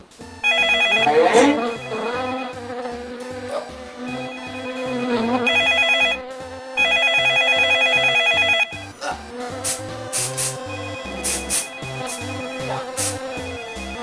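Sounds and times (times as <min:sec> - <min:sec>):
chiptune music: 0:00.0 - 0:14.0
telephone bell ringing: 0:00.3 - 0:02.2, 0:04.1 - 0:06.2, 0:06.8 - 0:08.8, 0:13.4 - 0:14.0.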